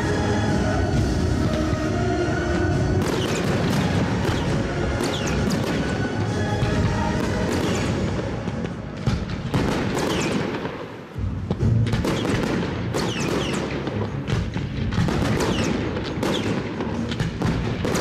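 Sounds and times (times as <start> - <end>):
music track: 0.0 - 9.0
fireworks bangs and crackles: 0.0 - 18.0.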